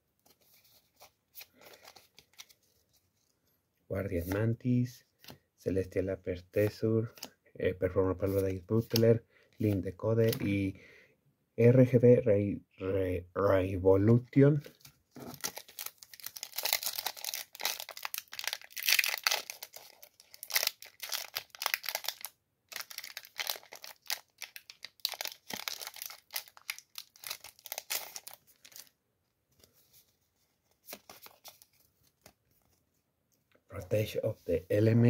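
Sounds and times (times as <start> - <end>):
foil wrapper tearing and crinkling: 15.2 - 28.9.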